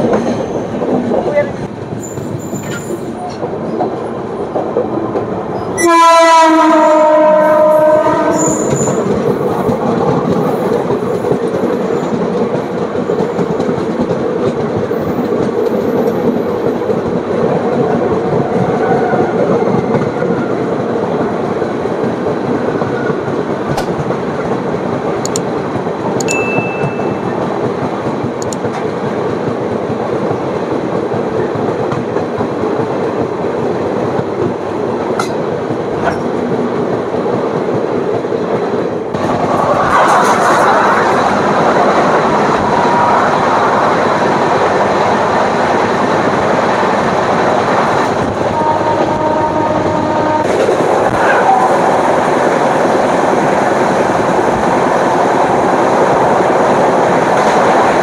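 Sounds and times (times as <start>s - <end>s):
train wheels on track: 0.0s - 58.0s
brief high tone: 26.3s - 27.4s.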